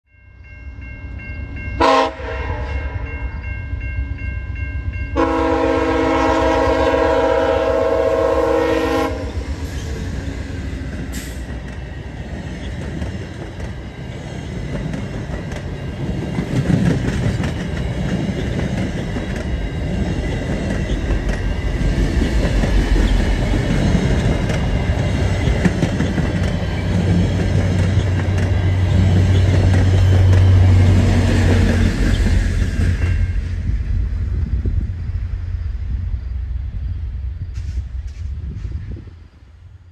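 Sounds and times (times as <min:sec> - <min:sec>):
train air horn blasts: 0:01.8 - 0:03.4, 0:05.2 - 0:09.8
train wheels clattering on rails: 0:09.6 - 0:34.8.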